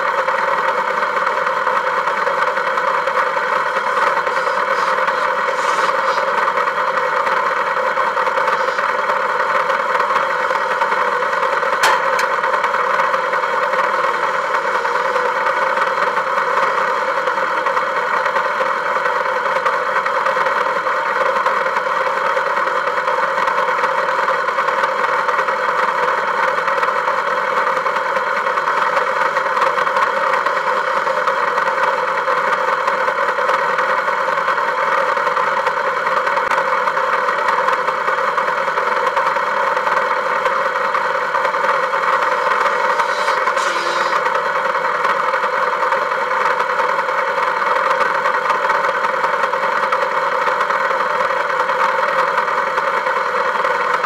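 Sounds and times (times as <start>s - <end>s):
car engine running: 0.0s - 20.8s, 38.8s - 47.4s.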